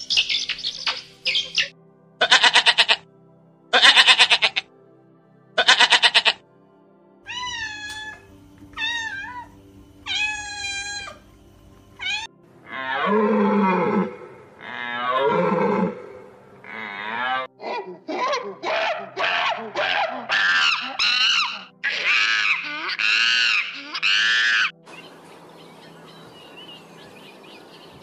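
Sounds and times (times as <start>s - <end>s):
goat bleating: 2.2s - 3.0s, 3.7s - 4.6s, 5.6s - 6.4s, 10.1s - 11.2s
cat meowing: 7.3s - 8.2s, 8.8s - 9.5s, 10.1s - 11.2s, 12.0s - 12.3s.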